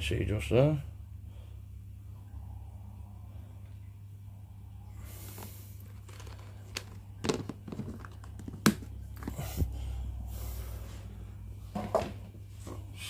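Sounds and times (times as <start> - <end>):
steady low hum: 0.0 - 13.0
plastic tub clicks and knocks: 6.2 - 9.3.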